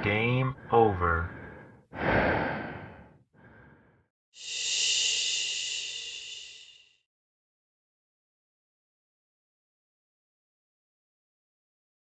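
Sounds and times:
heavy exhale: 0:01.3 - 0:07.0.

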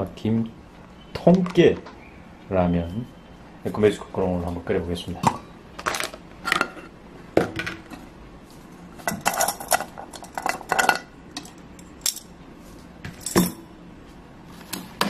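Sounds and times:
metal pot and bowls clinking: 0:09.1 - 0:12.2.

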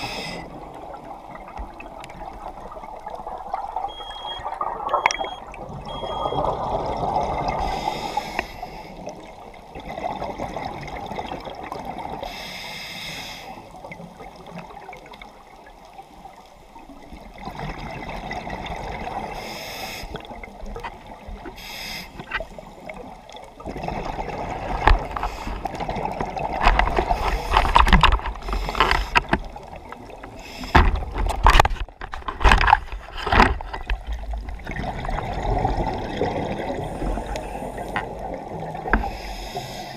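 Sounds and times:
underwater bubbles gurgling: 0:00.0 - 0:39.9
low underwater rumbling: 0:22.5 - 0:39.2.

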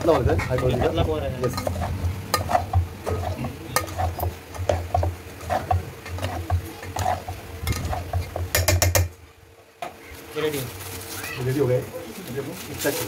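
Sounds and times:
steady low hum: 0:00.0 - 0:11.1
metal spoon scraping a pot: 0:00.4 - 0:09.1.

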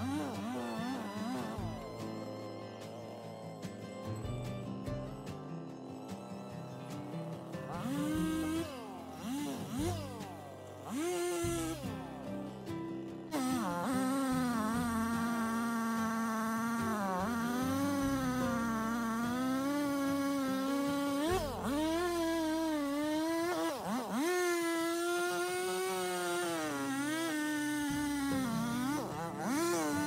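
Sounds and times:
chainsaw cutting wood: 0:00.0 - 0:30.0.

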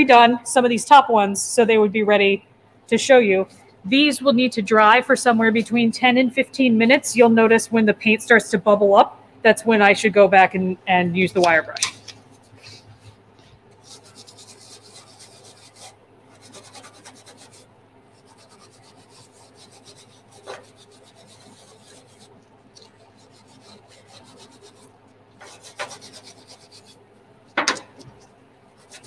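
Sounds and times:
wire brush scrubbing metal: 0:13.7 - 0:27.0, 0:27.6 - 0:29.0.

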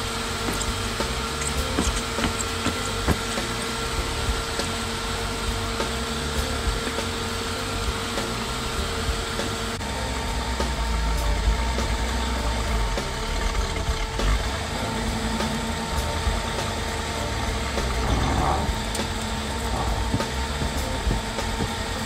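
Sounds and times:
car engine idling: 0:00.0 - 0:22.0.

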